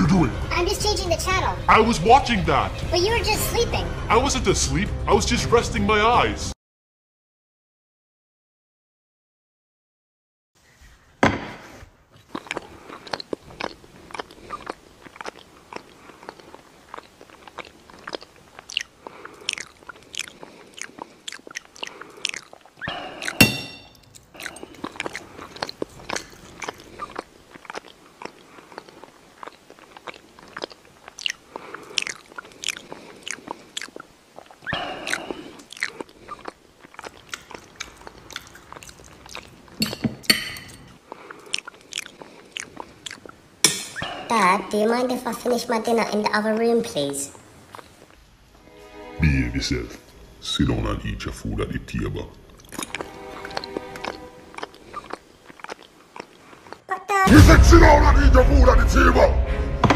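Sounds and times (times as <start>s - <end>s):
man chewing loudly: 12.2s - 39.9s, 40.7s - 44.1s, 52.3s - 56.9s.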